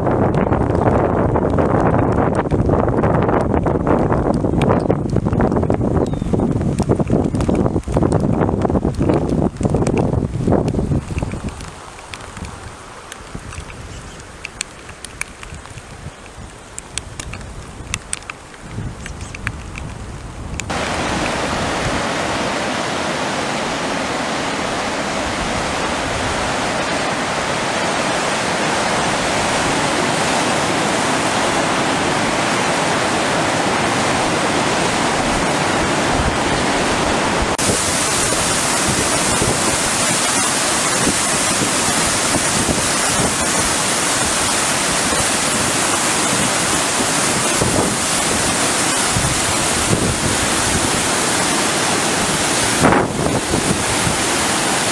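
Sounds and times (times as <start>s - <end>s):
water rushing through rapids: 20.6s - 54.9s.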